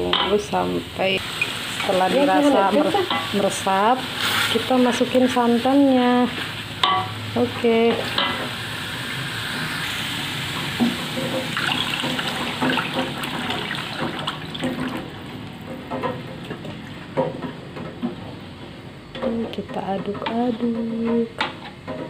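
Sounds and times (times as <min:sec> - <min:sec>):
meat frying: 0:00.0 - 0:17.8
spatula scraping a wok: 0:01.2 - 0:07.3
liquid poured into hot wok: 0:08.4 - 0:15.6.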